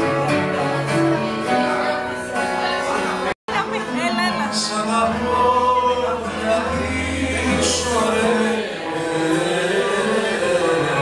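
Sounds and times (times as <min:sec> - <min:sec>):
men singing sustained melody: 0:05.7 - 0:11.0.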